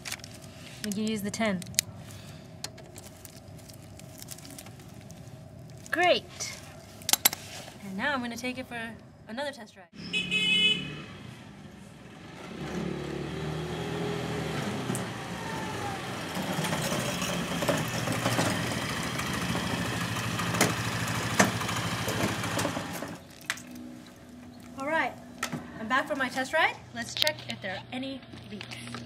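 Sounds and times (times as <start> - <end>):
scooter engine starting and running: 12.0 - 23.2.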